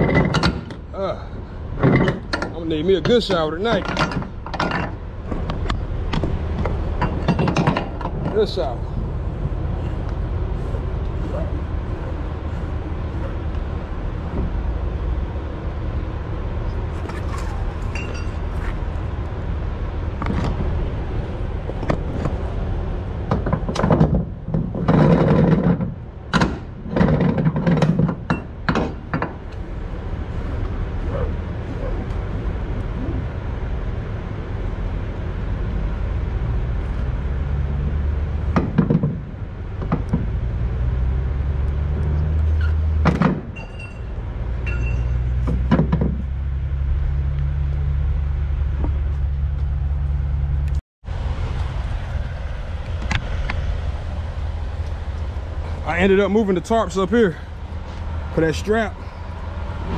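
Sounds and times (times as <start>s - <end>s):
vehicle engine rumble: 0.0s - 59.9s
cargo straps knocking and thumping: 23.2s - 29.5s, 38.5s - 40.4s, 42.9s - 43.6s, 45.3s - 46.3s.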